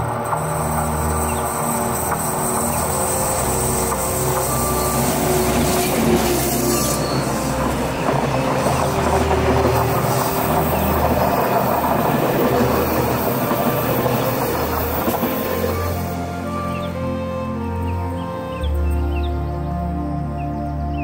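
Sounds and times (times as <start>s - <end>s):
train wheels running over rails: 0.0s - 16.8s
wheel squeal: 0.0s - 19.3s.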